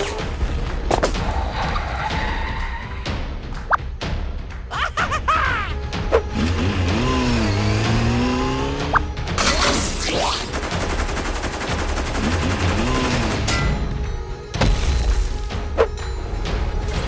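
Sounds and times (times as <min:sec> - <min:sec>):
background music: 0:00.0 - 0:17.0
rapid machine-gun fire: 0:10.4 - 0:13.5.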